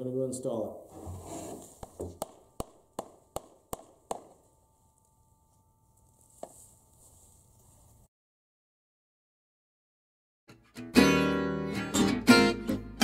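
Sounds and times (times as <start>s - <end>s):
sharp knocks: 1.9s - 4.4s.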